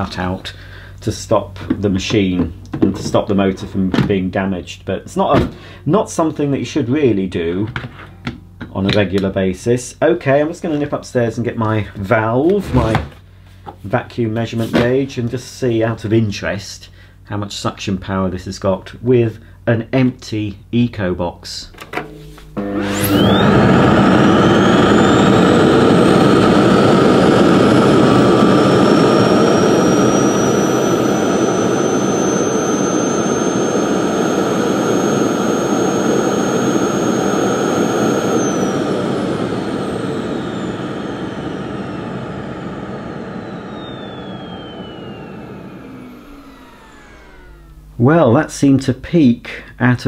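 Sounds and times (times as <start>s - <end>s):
vacuum cleaner motor whine: 21.9s - 48.1s.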